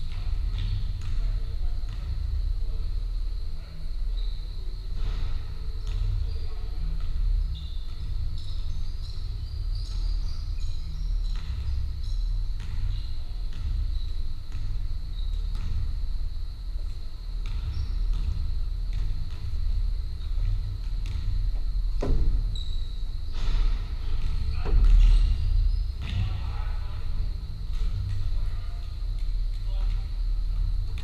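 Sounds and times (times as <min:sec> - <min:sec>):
basketball bouncing on wooden court: 0:00.0 - 0:03.1, 0:04.1 - 0:31.0
sneaker squeaks: 0:03.6 - 0:30.1
knocks: 0:22.0 - 0:22.5.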